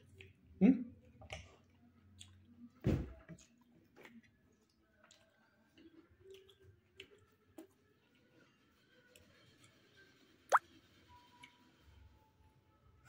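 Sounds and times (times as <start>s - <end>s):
person chewing: 1.3s - 2.4s, 3.4s - 7.8s
dull thump: 2.8s - 3.2s.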